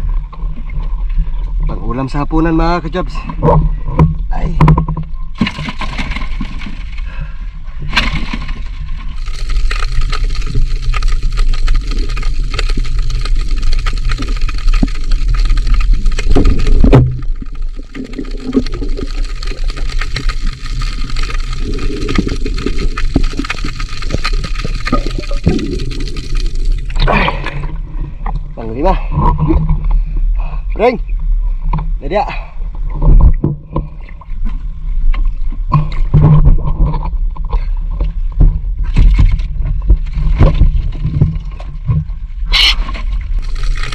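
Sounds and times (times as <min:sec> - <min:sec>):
water rushing and gurgling: 0:07.7 - 0:36.0, 0:39.5 - 0:43.9.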